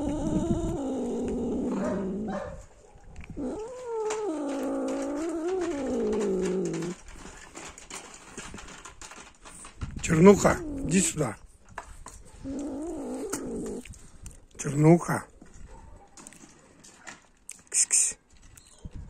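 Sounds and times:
cat yowling: 0:00.0 - 0:02.4, 0:03.3 - 0:07.0.

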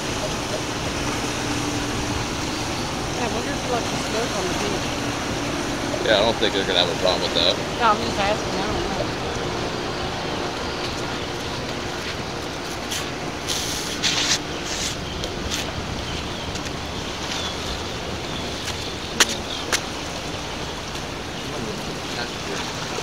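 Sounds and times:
water washing against rocks: 0:00.0 - 0:23.0
wind on microphone: 0:00.0 - 0:23.0
rushes of hiss: 0:12.8 - 0:15.0.

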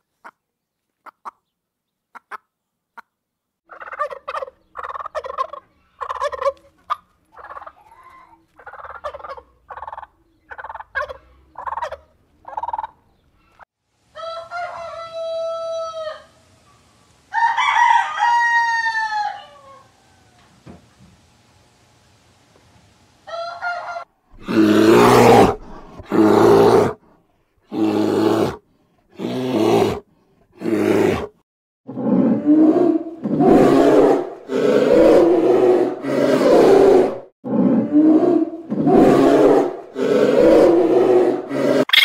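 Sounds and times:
bear roaring and growling: 0:24.4 - 0:27.0, 0:27.6 - 0:42.0.

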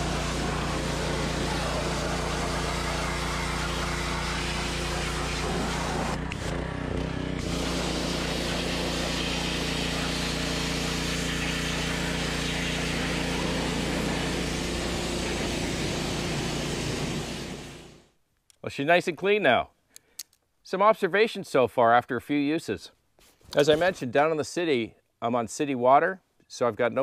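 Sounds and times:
high-pressure water jet hissing: 0:00.0 - 0:06.5, 0:07.4 - 0:18.0
pressure washer engine running: 0:00.0 - 0:18.0.

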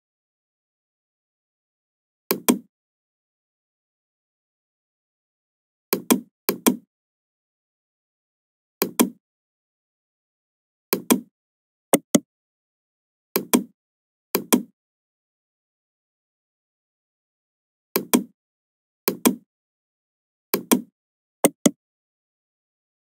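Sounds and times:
computer mouse clicking: 0:02.3 - 0:02.7, 0:08.8 - 0:09.2.

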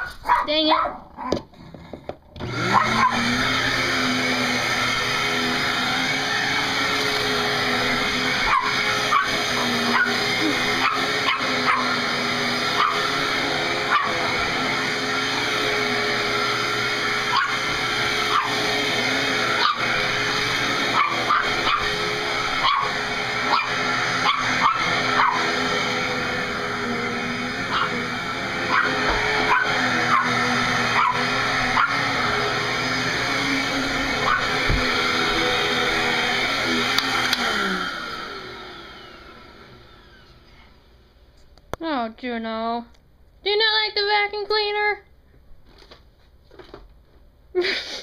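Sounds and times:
dog barking and yipping: 0:00.0 - 0:01.4, 0:02.6 - 0:03.4, 0:08.3 - 0:14.3, 0:17.3 - 0:18.7, 0:19.4 - 0:25.8, 0:27.6 - 0:32.6, 0:34.0 - 0:35.2
vacuum cleaner motor humming: 0:01.6 - 0:41.2.

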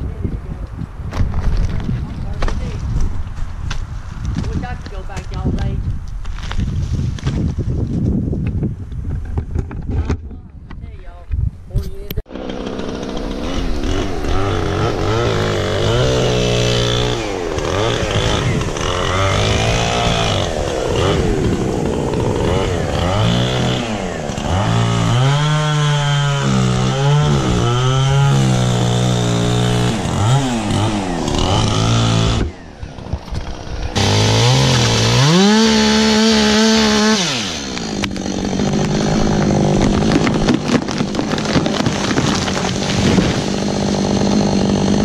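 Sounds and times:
chainsaw cutting wood: 0:12.3 - 0:45.0.

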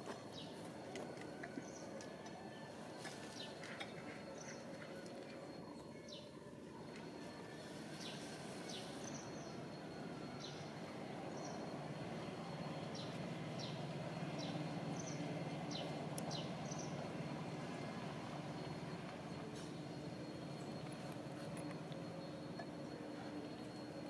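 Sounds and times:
birds chirping: 0:07.4 - 0:17.8.

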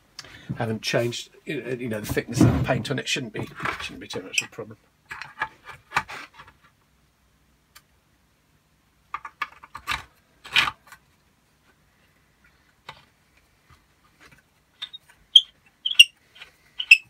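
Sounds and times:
plastic parts rubbing and scraping: 0:01.9 - 0:06.8, 0:09.1 - 0:17.0.

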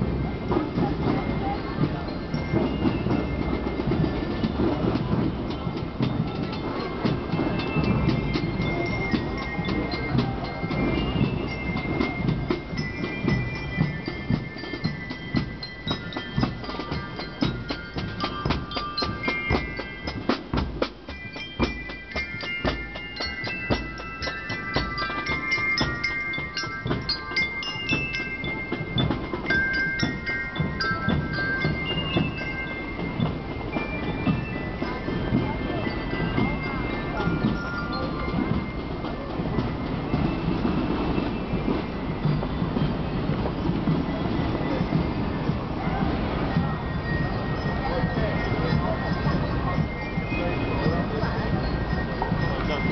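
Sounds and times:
bright bell lyre notes: 0:00.0 - 0:52.9
marching drumbeats: 0:00.0 - 0:52.9.

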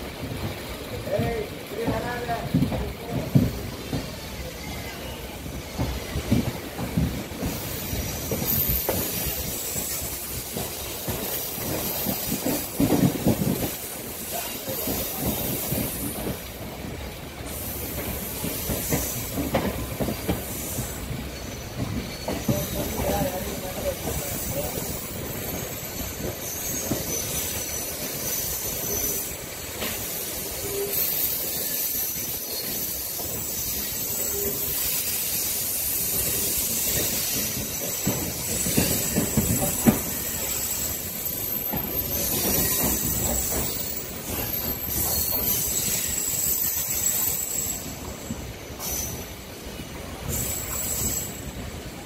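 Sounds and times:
train wheels rumbling on track: 0:00.0 - 0:52.0
high wheel squeals: 0:20.1 - 0:49.5, 0:50.2 - 0:51.8.

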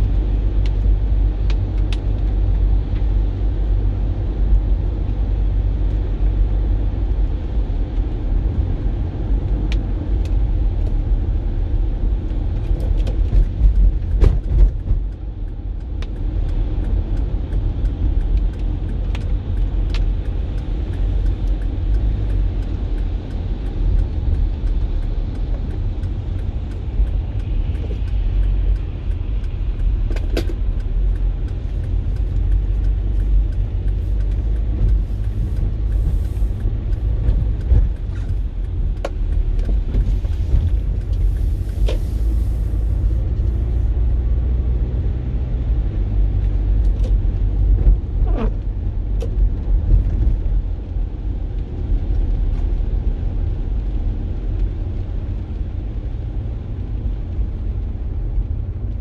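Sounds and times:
car road rumble: 0:00.0 - 0:59.0
sharp ticks: 0:14.8 - 0:41.8
rain and tyre spray: 0:16.4 - 0:44.1.

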